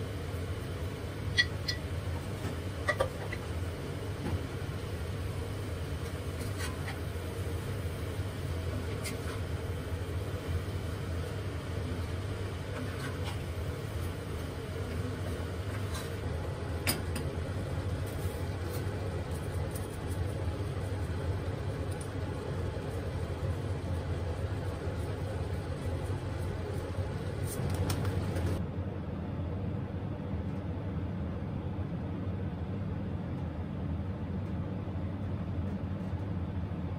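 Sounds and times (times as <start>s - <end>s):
steady low hum: 0.0s - 36.9s.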